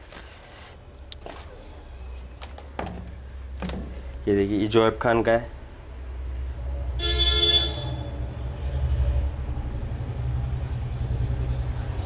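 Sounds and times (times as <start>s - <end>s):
short horn toot: 7.0s - 8.2s.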